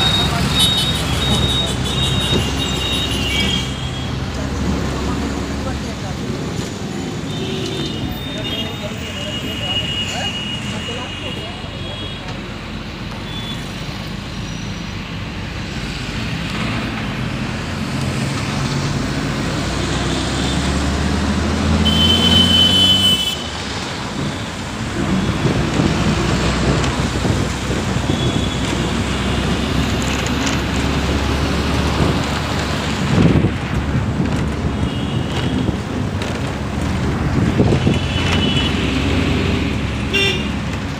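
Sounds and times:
road and wind noise: 0.0 - 40.9
vehicle engine hum: 11.1 - 40.9.

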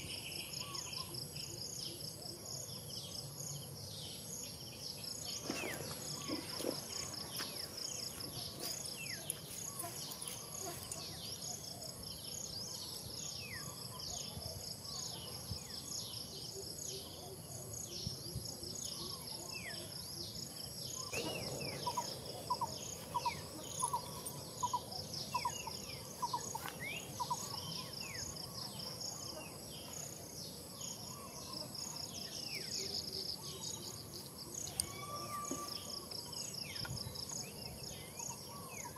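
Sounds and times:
insects trilling: 0.0 - 38.9
short evenly spaced calls: 20.4 - 36.6.

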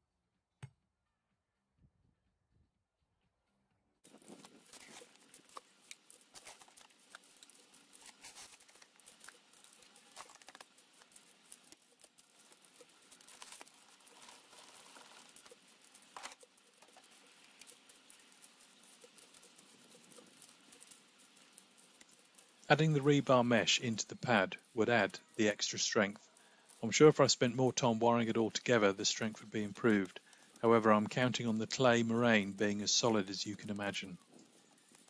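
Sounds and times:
shovel scraping soil and stones: 4.1 - 5.7.

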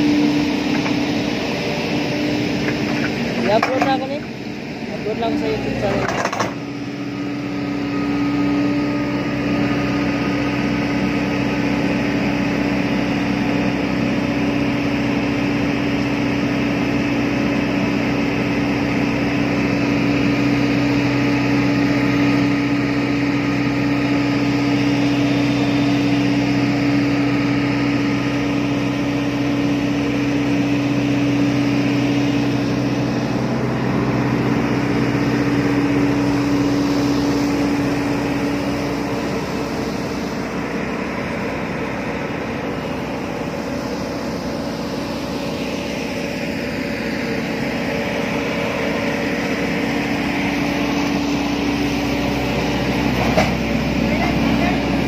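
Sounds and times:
excavator vibratory hammer hum: 0.0 - 55.0.

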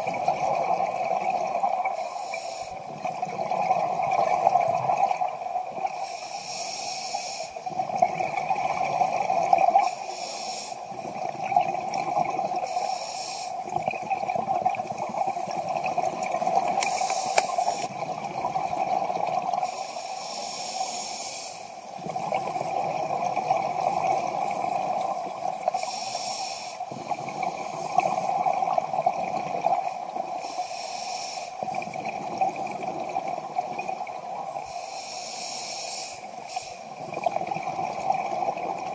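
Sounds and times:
exhaled bubbles gurgling: 0.0 - 6.2, 7.4 - 20.1, 21.6 - 30.7, 31.4 - 35.0, 36.0 - 38.9
regulator inhalation hiss: 1.9 - 2.8, 6.0 - 7.6, 9.8 - 11.0, 12.6 - 13.7, 16.7 - 17.9, 19.6 - 21.9, 25.7 - 27.0, 30.3 - 31.7, 34.6 - 37.0.

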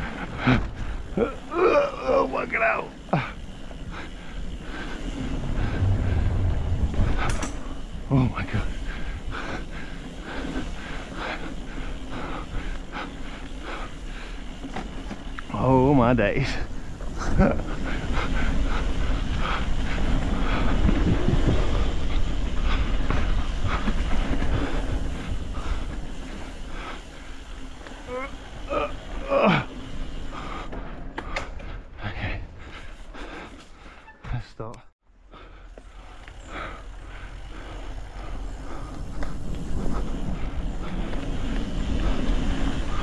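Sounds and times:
mountain bike rumble and rattle: 0.0 - 43.0
wind buffeting microphone: 3.8 - 14.3, 16.4 - 27.4.

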